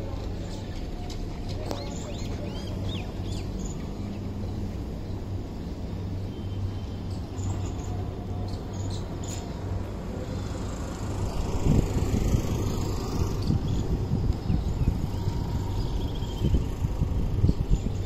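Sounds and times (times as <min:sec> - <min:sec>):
wind buffeting microphone: 0:10.9 - 0:18.0.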